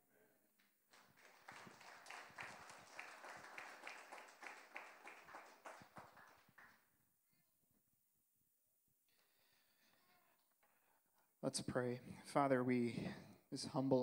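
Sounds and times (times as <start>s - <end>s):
people applauding: 0.9s - 6.9s.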